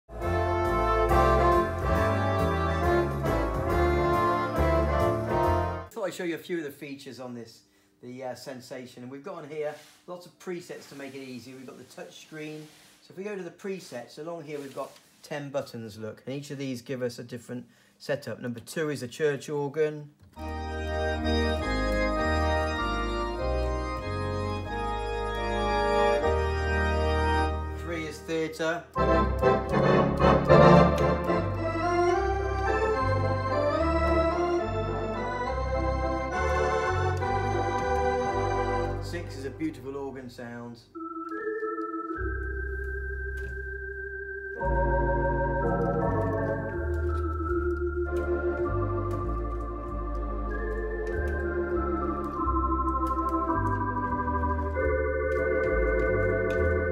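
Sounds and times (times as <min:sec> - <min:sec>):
electronic organ playing chords: 0:00.1 - 0:05.9, 0:20.3 - 0:39.8, 0:40.9 - 0:56.9.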